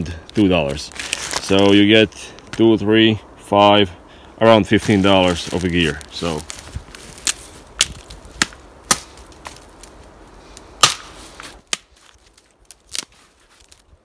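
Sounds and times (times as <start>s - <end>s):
dry branches snapping: 0.3s - 1.8s, 4.8s - 13.9s.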